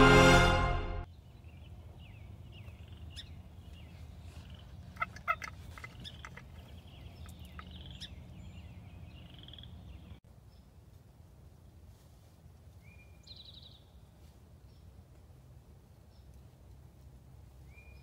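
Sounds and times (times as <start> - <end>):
small birds chirping: 1.1 - 10.7
turkey gobbling: 4.4 - 6.5.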